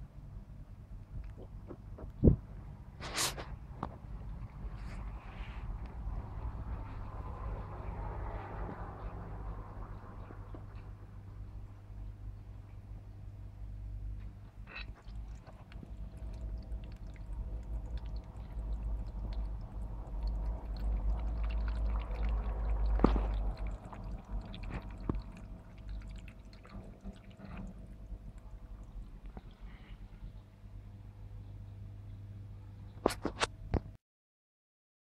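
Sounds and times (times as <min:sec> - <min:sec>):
cat lapping water: 0:14.7 - 0:30.3
water trickling and splashing: 0:14.8 - 0:29.9.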